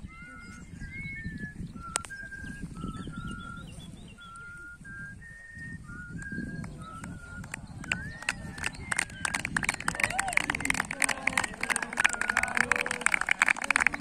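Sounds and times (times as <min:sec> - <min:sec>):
faint bird chirps: 0:00.0 - 0:09.3
person whistling a slow tune: 0:00.3 - 0:09.8.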